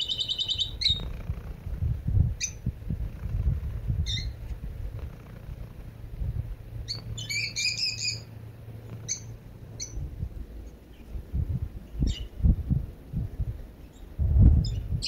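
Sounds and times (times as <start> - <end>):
small birds chirping: 0.0 - 12.5, 13.7 - 15.0
cat purring: 0.8 - 7.2, 8.6 - 11.8.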